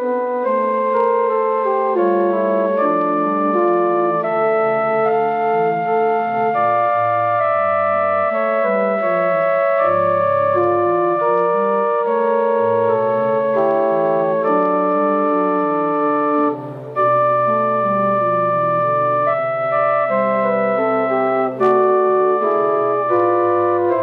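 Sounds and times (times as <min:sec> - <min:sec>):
pipe organ chords: 0:00.0 - 0:24.0.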